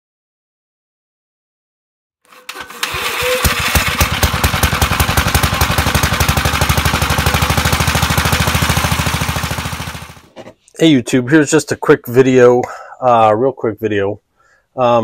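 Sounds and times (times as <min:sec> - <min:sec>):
small engine starting and running: 0:02.3 - 0:10.3.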